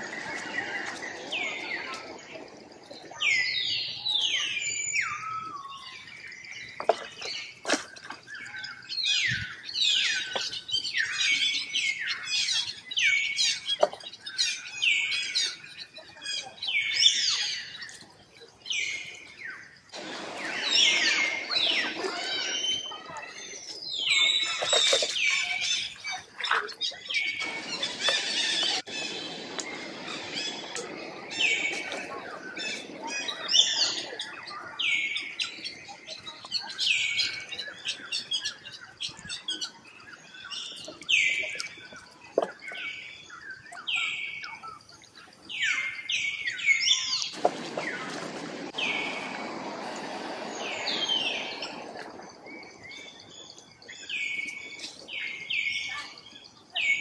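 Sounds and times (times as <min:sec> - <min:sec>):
rustle of dry leaves: 0:16.2 - 0:26.5, 0:45.3 - 0:57.0.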